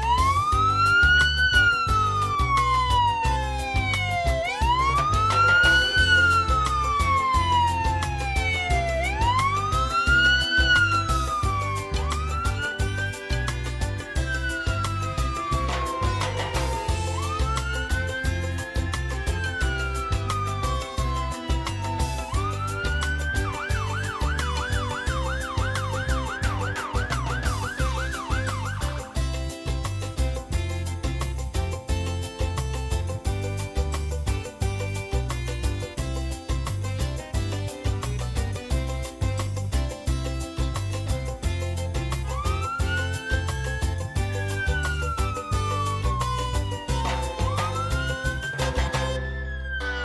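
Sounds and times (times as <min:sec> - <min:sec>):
police siren wailing: 0:00.0 - 0:30.2, 0:42.2 - 0:50.0
background music with bass line: 0:00.0 - 0:50.0.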